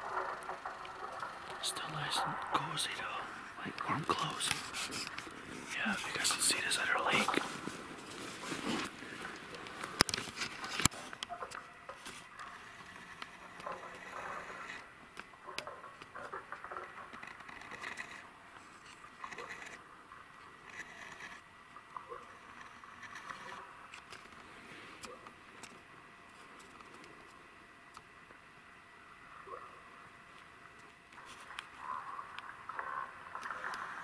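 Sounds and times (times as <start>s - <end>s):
rustling against dry grass: 1.8s - 11.2s.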